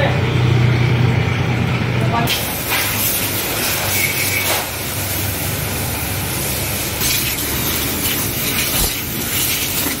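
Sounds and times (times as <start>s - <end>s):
hose spraying water: 2.3s - 10.0s.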